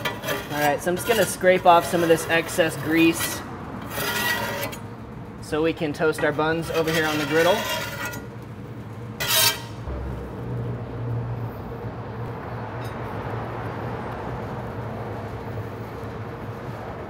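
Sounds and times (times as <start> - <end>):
metal spatula scraping griddle: 0.0 - 4.9, 6.0 - 8.4, 9.2 - 9.9.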